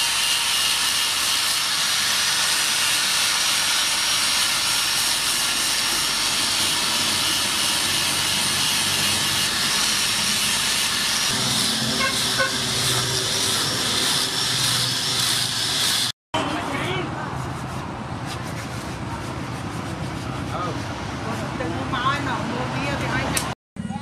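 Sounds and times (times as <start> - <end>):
angle grinder sanding: 0.0 - 16.1.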